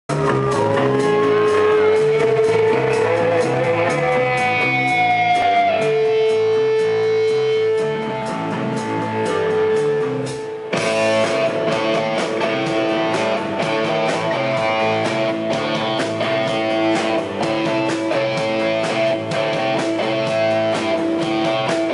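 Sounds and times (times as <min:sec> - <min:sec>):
electric guitar bending notes: 0:00.0 - 0:21.9
live rock band playing: 0:00.1 - 0:21.9.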